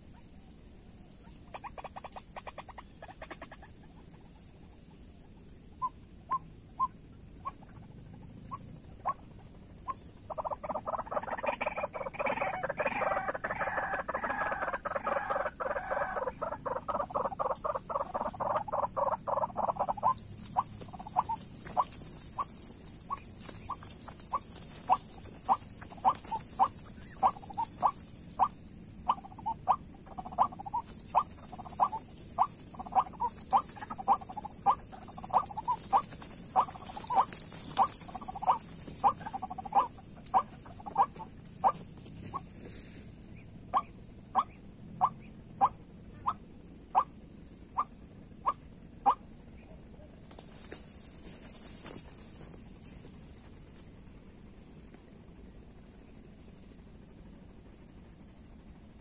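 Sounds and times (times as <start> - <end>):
waterhens calling: 10.3 - 41.8.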